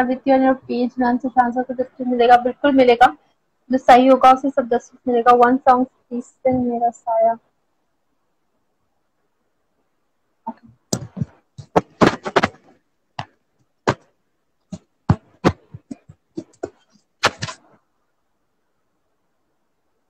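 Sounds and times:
sharp taps and knocks: 10.6 - 14.1, 14.7 - 17.6.

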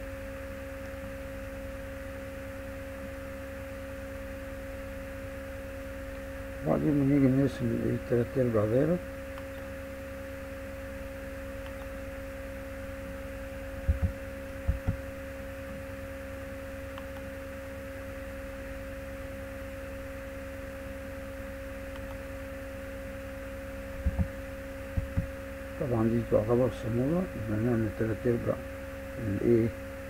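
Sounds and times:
electrical hum: 0.0 - 30.0
low thumps: 13.8 - 15.0, 24.0 - 24.3, 25.0 - 25.3.

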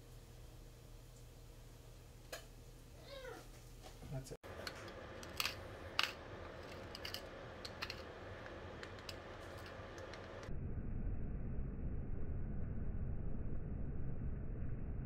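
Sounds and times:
dull rumbling noise: 4.4 - 15.0
pepper mill grinding: 4.5 - 10.5.

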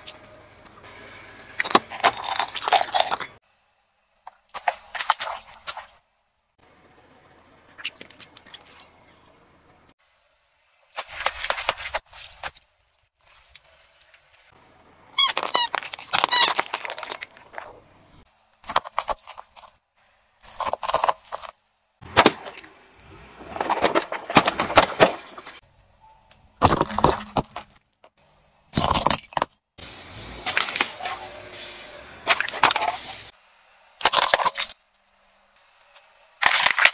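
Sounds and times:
squeaky toy balls squealing: 15.1 - 17.0
plastic cracking and crunching: 15.2 - 17.8, 36.4 - 36.9.

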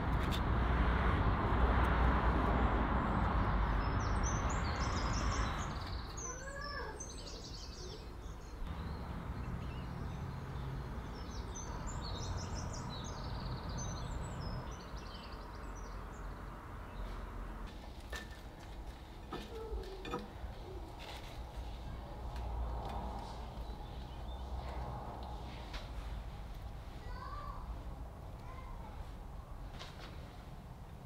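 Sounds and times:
low outdoor background noise: 0.0 - 31.0
small birds chirping: 2.6 - 17.4, 19.0 - 25.7.

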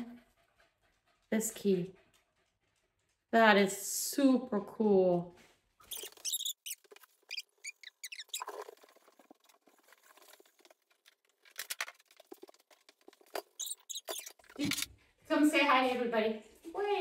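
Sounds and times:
short high squeaks: 5.8 - 8.7, 13.6 - 14.9.

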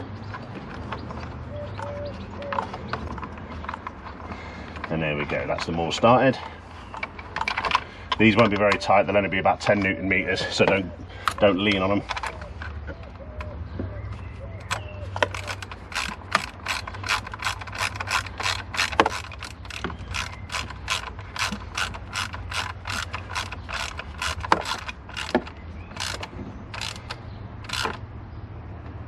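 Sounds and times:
hand ratchet clicking: 14.7 - 28.0.

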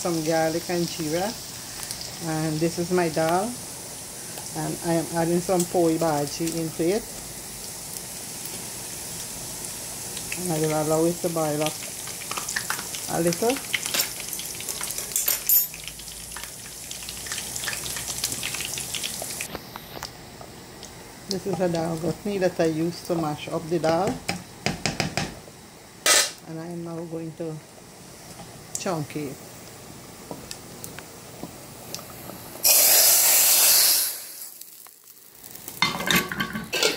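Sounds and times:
spices crackling in oil: 0.0 - 23.5, 28.2 - 35.9
hot oil hissing and sizzling: 0.0 - 24.7, 27.2 - 36.9
pot bubbling: 10.0 - 23.4.

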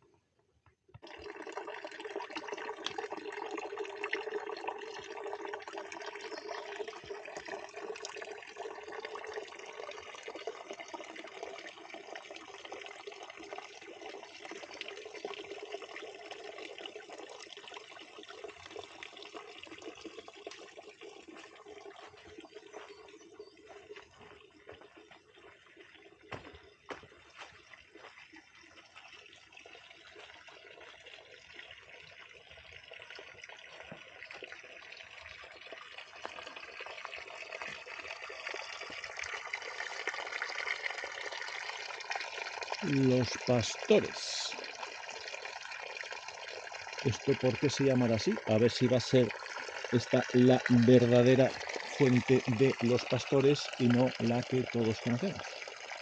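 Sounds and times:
spring water running: 0.9 - 56.0.

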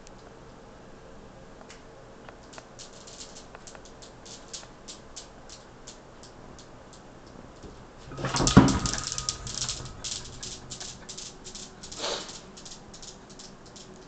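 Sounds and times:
metal balls clicking: 2.4 - 7.0, 7.6 - 14.0.

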